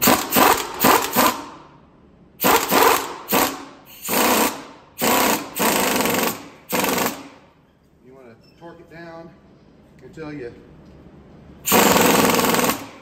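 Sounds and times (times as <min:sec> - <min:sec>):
pneumatic impact wrench hammering: 0:00.0 - 0:01.6, 0:02.4 - 0:07.5, 0:11.6 - 0:13.0.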